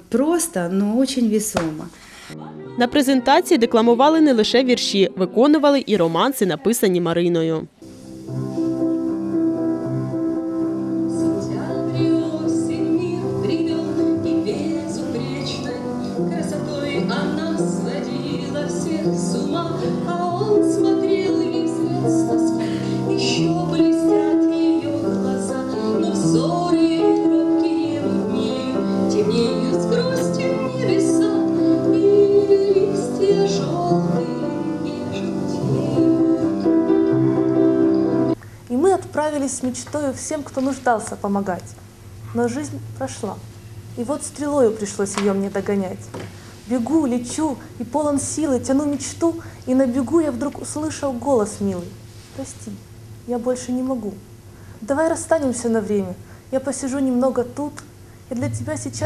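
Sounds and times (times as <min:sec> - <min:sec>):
woman singing: 0:00.0 - 0:06.7, 0:11.0 - 0:36.9, 0:54.8 - 0:59.0
upright piano accompaniment: 0:01.5 - 0:38.4.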